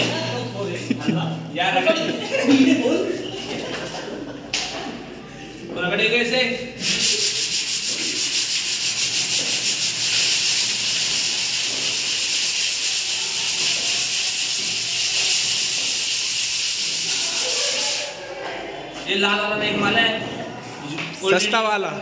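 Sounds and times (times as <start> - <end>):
hand sanding sheet metal: 6.8 - 18.2.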